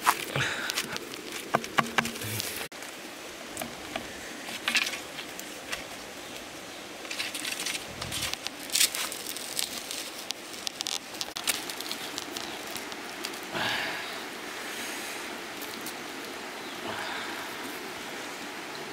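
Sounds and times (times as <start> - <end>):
bamboo creaking and clicking: 0.0 - 2.7, 3.5 - 13.5
footsteps on wet gravel: 0.0 - 2.7.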